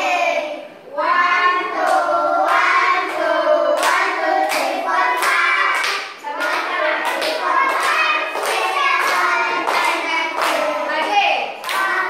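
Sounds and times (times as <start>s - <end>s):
children singing in unison: 0.0s - 11.0s, 11.6s - 12.0s
hand claps: 3.8s - 12.0s.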